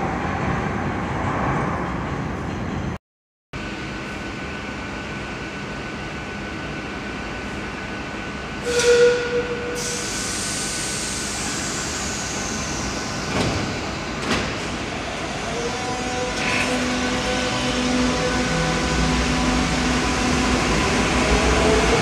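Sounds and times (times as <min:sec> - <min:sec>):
air hiss: 0:09.8 - 0:13.2
train doors sliding shut: 0:12.8 - 0:15.0.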